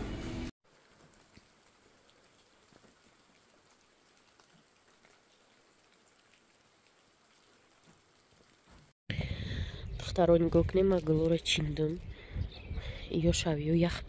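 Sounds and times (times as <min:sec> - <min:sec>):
light rain falling: 0:00.6 - 0:09.0
soft drips: 0:00.8 - 0:09.0.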